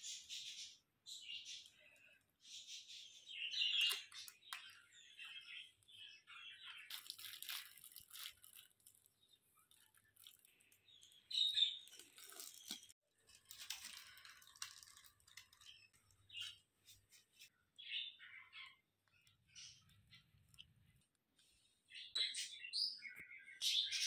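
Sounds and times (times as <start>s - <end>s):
plastic sheet crinkling: 6.8s - 17.5s.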